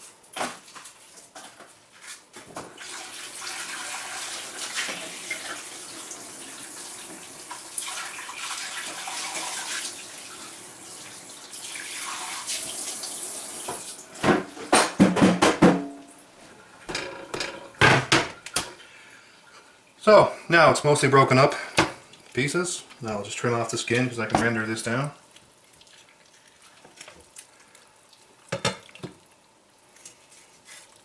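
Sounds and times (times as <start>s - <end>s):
water running from a tap: 2.8s - 14.2s
sharp knocks and thuds: 14.2s - 15.9s.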